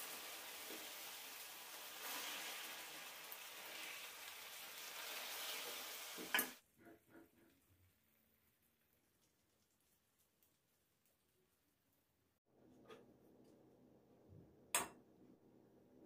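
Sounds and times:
food sizzling: 0.0s - 6.6s.

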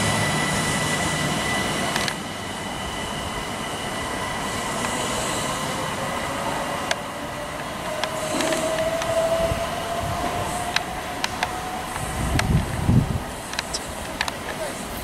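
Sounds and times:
electric train running noise: 0.0s - 15.0s
wheels clicking over track: 7.6s - 9.4s, 10.2s - 12.8s.

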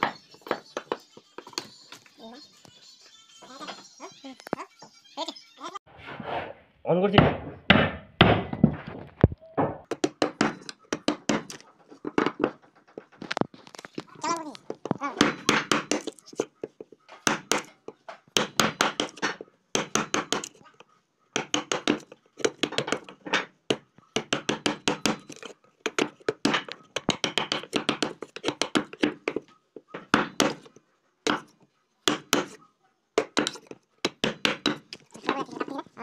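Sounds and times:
chisel chopping into wood: 7.2s - 8.6s, 9.8s - 11.6s, 15.2s - 16.5s, 17.2s - 17.7s, 18.4s - 20.6s, 21.4s - 29.4s, 30.0s - 30.7s, 31.3s - 32.6s, 33.2s - 35.0s.

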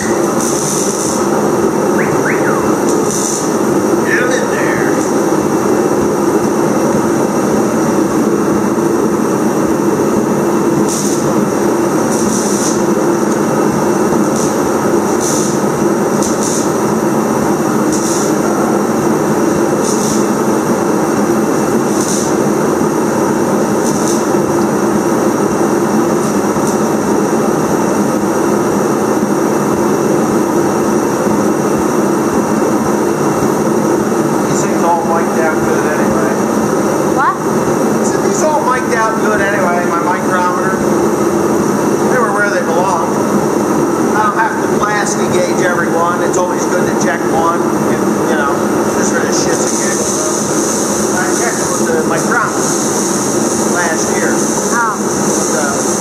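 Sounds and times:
high hissy rustles: 0.0s - 1.4s, 2.6s - 5.5s, 12.0s - 13.6s, 14.2s - 16.9s, 17.8s - 18.4s, 19.8s - 20.5s, 21.8s - 22.6s, 23.7s - 24.3s, 48.0s - 56.0s
machinery droning: 0.0s - 56.0s.

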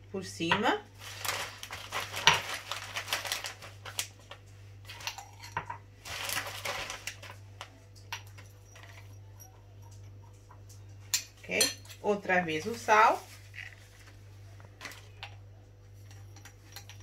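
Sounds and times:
packet rustling: 1.0s - 5.1s, 6.0s - 7.4s.

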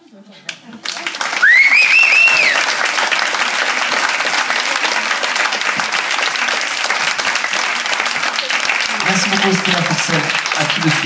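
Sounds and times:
audience applauding: 0.8s - 11.0s
piercing whistle: 1.4s - 2.6s.

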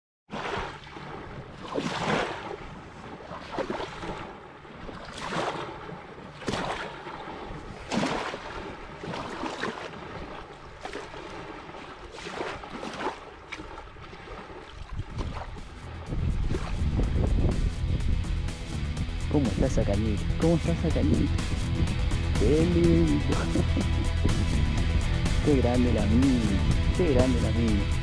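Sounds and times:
small waves lapping on sand: 0.3s - 17.8s
wind on microphone: 14.8s - 28.0s.

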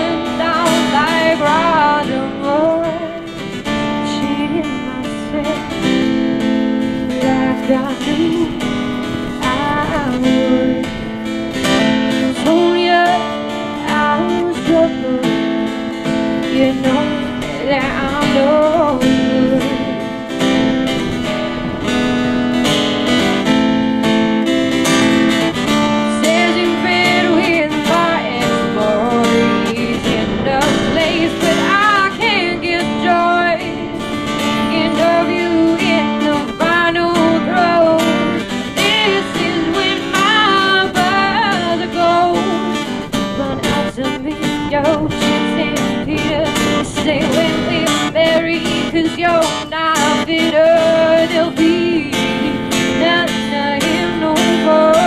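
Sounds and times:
woman singing: 0.0s - 21.2s, 24.8s - 55.0s
strummed acoustic guitar: 0.0s - 55.0s.

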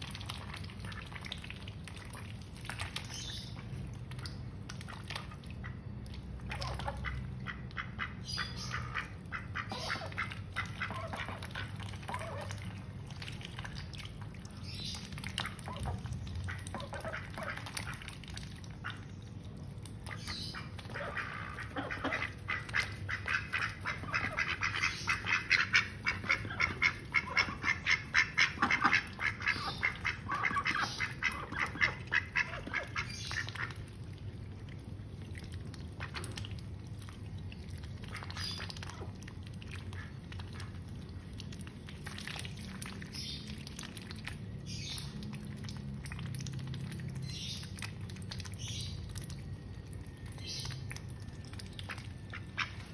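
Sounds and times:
ducks quacking: 6.5s - 12.6s, 15.3s - 19.0s, 20.0s - 33.9s, 52.2s - 52.9s.

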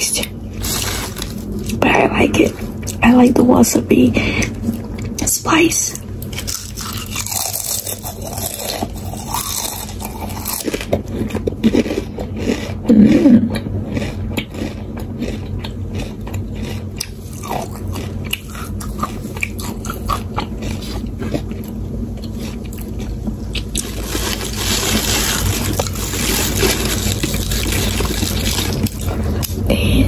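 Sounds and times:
chewing crisp chips: 0.0s - 3.4s, 4.3s - 29.6s
gloved hand rustling chips: 0.6s - 2.0s, 6.3s - 10.8s, 23.6s - 29.4s.

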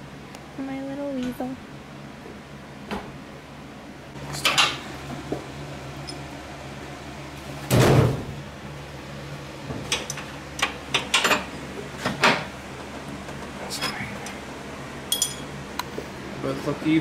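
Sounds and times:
steady low hum: 0.0s - 17.0s
metal tools clanking: 9.9s - 11.5s, 15.1s - 15.5s.

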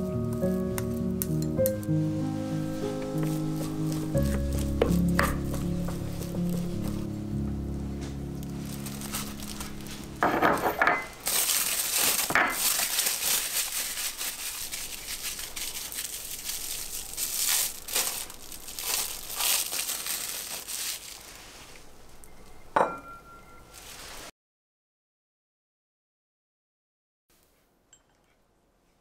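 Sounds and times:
plastic cling wrap crinkling: 0.0s - 22.6s, 23.7s - 24.3s
ceramic clink on plate: 22.8s - 23.6s.

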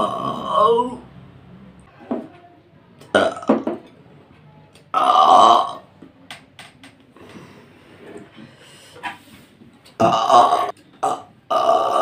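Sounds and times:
woman burping: 0.0s - 1.0s, 3.1s - 3.8s, 4.9s - 5.8s, 10.0s - 12.0s.

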